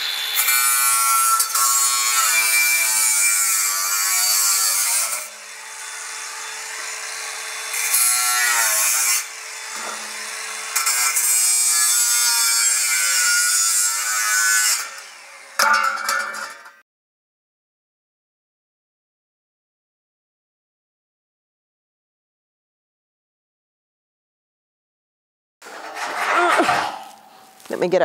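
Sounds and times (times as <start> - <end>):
angle grinder cutting steel: 0.0 - 16.8, 25.6 - 28.0.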